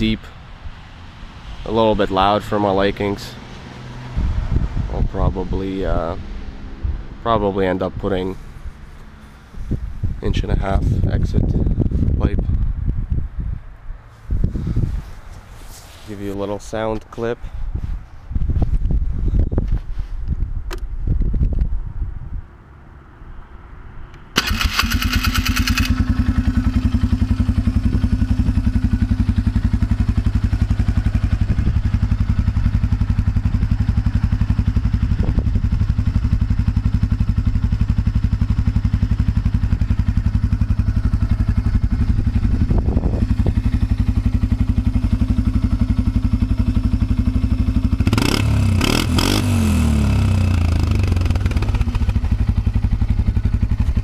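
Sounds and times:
engine cranking and starting: 0:24.4 - 0:26.0
atv engine idling: 0:24.4 - 0:54.0.

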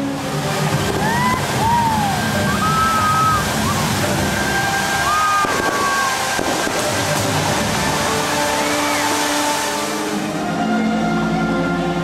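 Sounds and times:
fountain water splashing: 0:00.0 - 0:12.0
sliding whistle-like tones: 0:01.0 - 0:06.4, 0:07.9 - 0:10.2.

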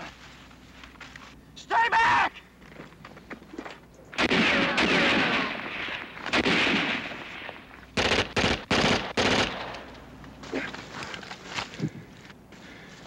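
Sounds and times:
small-arms gunfire: 0:04.2 - 0:09.9.

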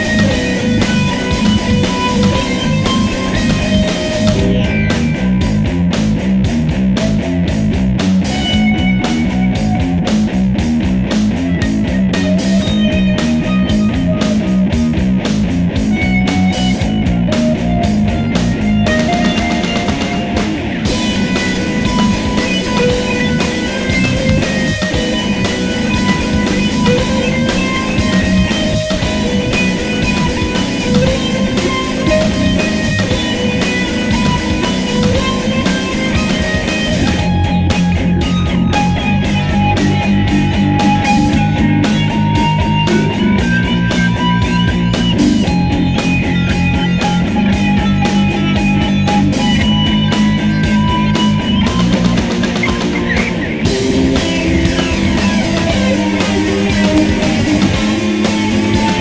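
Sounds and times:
metal band playing: 0:00.0 - 0:59.0.

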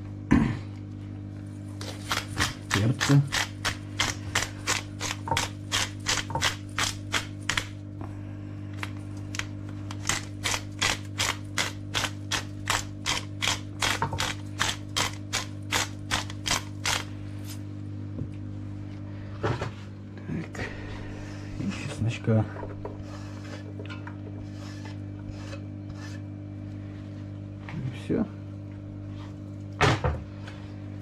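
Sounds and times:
pepper mill grinding and clicking: 0:01.8 - 0:07.8, 0:09.3 - 0:17.6.

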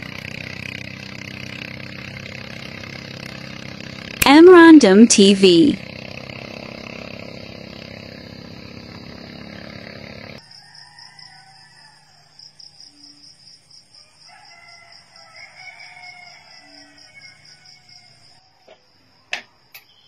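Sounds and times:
distant rooster crowing: 0:10.4 - 0:13.2, 0:13.9 - 0:18.9.

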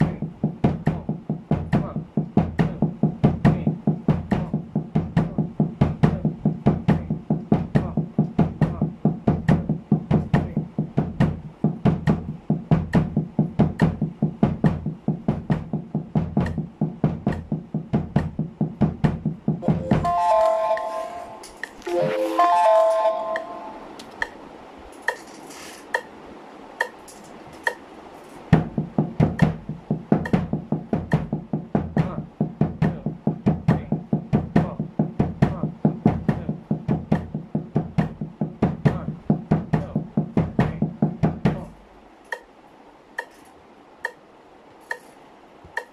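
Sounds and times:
muffled snare drum: 0:00.0 - 0:20.2, 0:26.8 - 0:42.5, 0:45.7 - 0:45.9
kick drum strokes: 0:00.0 - 0:20.4, 0:28.4 - 0:42.5
metronome ticking: 0:00.0 - 0:24.4, 0:25.0 - 0:25.3, 0:25.9 - 0:26.1, 0:26.8 - 0:27.9, 0:28.5 - 0:42.5, 0:43.1 - 0:45.9.

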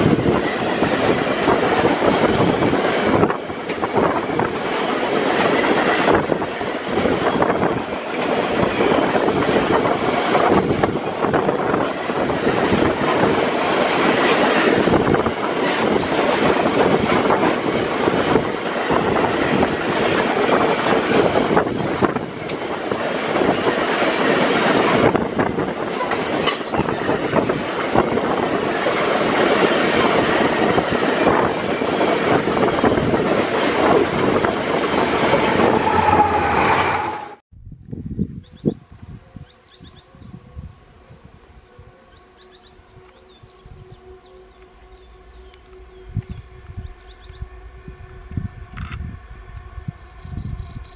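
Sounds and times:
train wheels rumbling and clattering: 0:00.0 - 0:37.4
locomotive hum: 0:34.0 - 0:37.4.

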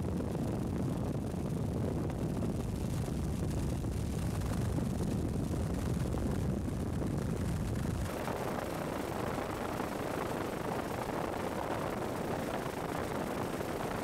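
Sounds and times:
helicopter engine and rotor rumble: 0:08.0 - 0:14.0.

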